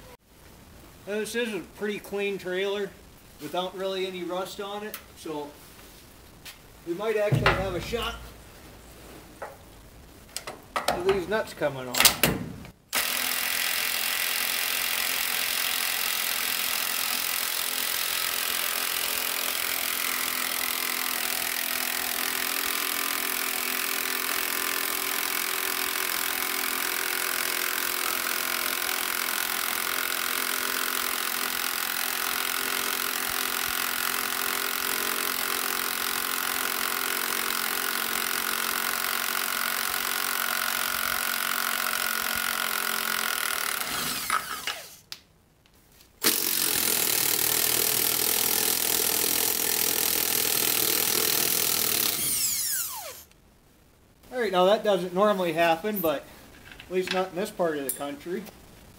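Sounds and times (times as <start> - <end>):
power tool running: 12.9 - 45.0, 46.2 - 53.3.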